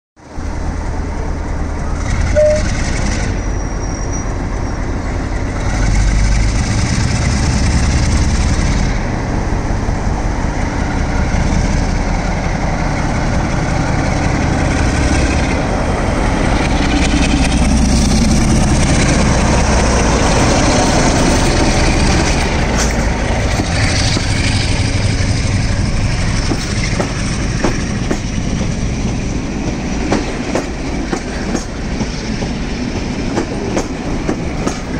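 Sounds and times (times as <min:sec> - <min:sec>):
diesel locomotive engine: 0:00.2 - 0:34.9
train wheels clattering over rail joints: 0:16.6 - 0:34.9.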